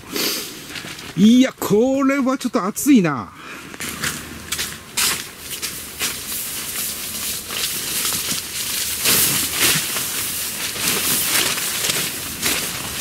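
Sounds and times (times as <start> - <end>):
tent fabric rustling: 3.6 - 13.0.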